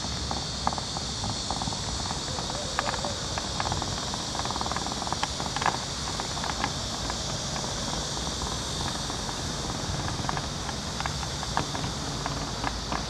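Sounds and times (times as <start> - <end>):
high-pitched insect drone: 0.0 - 13.0.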